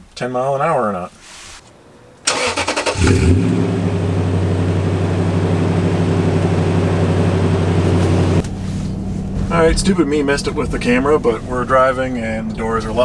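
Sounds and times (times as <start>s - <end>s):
engine idling at exhaust: 3.1s - 12.8s
muffled engine hum in cabin: 3.5s - 13.0s.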